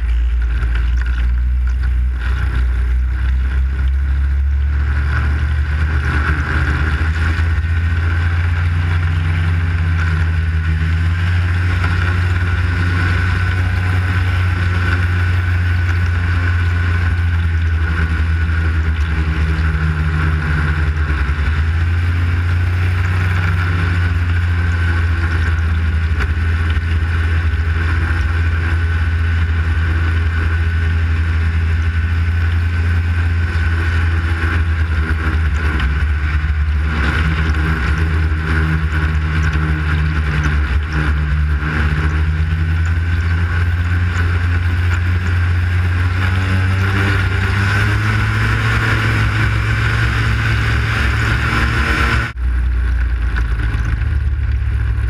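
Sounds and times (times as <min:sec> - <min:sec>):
snowmobile engine drone: 0:00.0 - 0:55.0.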